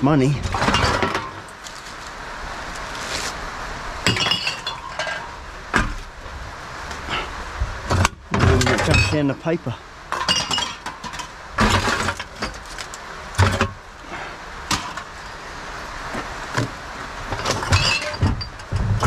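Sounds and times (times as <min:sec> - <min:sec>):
cans and bottles clattering in bin: 0:00.5 - 0:01.5, 0:10.2 - 0:12.6, 0:17.3 - 0:19.0.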